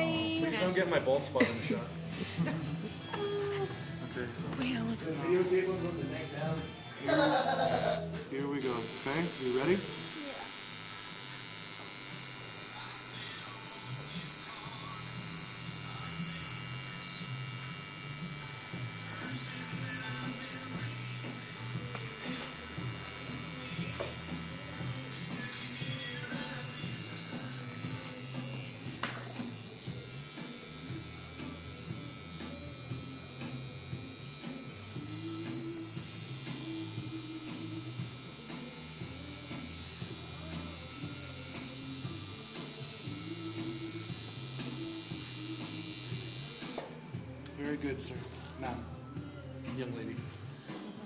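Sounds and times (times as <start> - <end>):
tattoo machine buzzing: 7.2 - 47.0.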